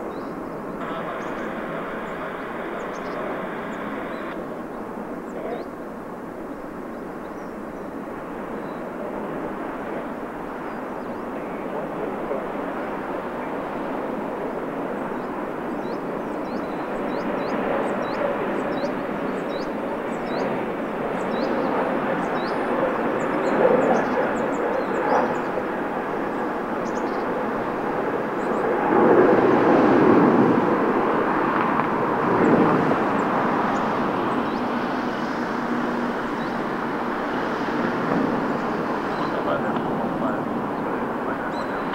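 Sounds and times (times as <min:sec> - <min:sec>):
jet engines at takeoff power: 0:00.0 - 0:41.9.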